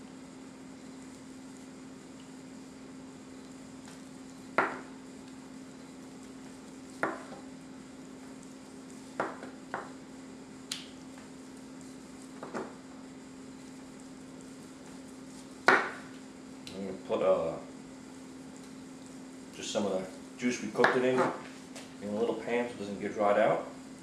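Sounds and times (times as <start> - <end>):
steady low hum: 0.0 - 24.0
knife tapping cutting board: 4.6 - 4.8, 7.0 - 7.4, 9.2 - 9.9.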